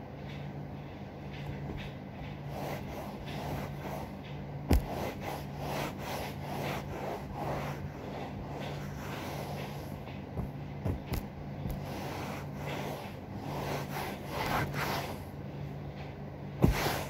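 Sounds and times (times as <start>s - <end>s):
steady low hum: 0.0s - 17.0s
cloth rubbing upholstery: 2.4s - 15.3s, 16.6s - 17.0s.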